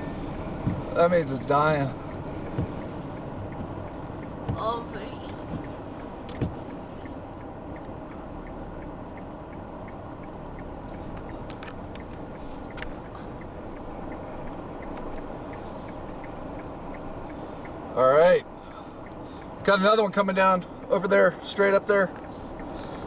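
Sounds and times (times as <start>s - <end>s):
vehicle rumble inside cabin: 0.0s - 23.0s
soft handling bump: 4.4s - 6.7s.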